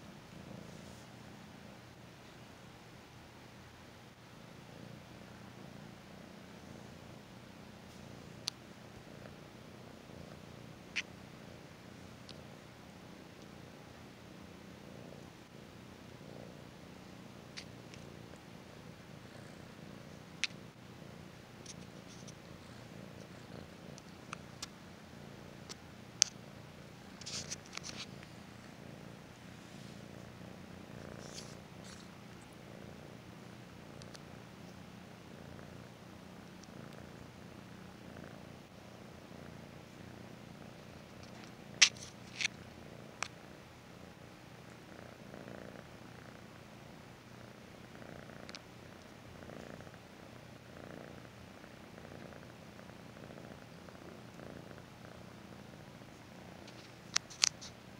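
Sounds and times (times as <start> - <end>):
kitten purring: 0.0 - 57.9
faint rustles: 17.3 - 33.2.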